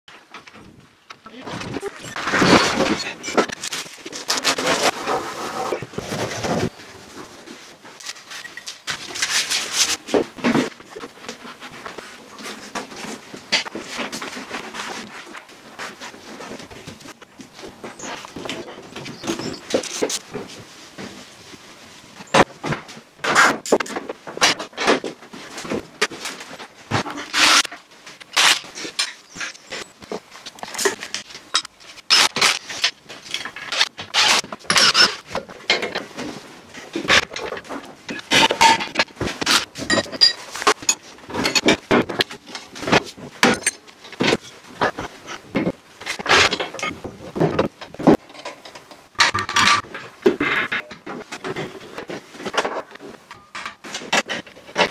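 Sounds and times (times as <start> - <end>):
metal parts and tools clattering: 30.6 - 54.9.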